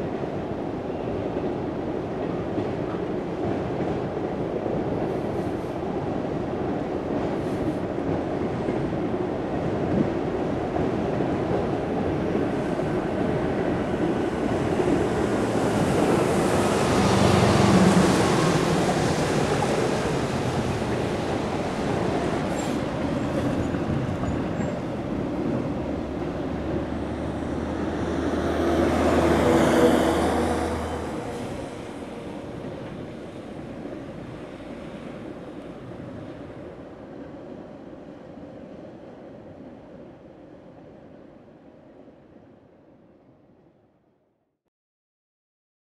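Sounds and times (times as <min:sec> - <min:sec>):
vehicles passing on road: 0:14.3 - 0:24.1, 0:25.0 - 0:36.0.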